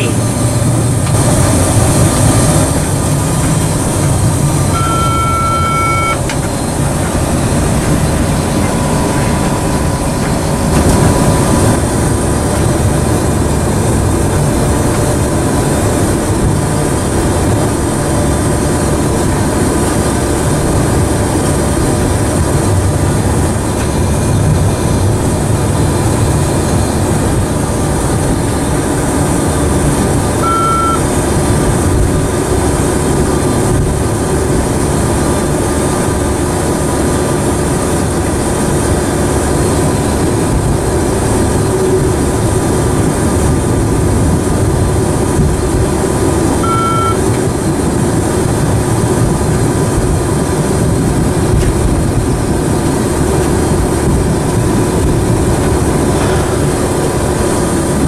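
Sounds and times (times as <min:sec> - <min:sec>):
train wheels rumbling on rail: 0:00.0 - 0:58.0
short electronic beep: 0:04.6 - 0:06.3, 0:30.4 - 0:31.0, 0:46.6 - 0:47.2.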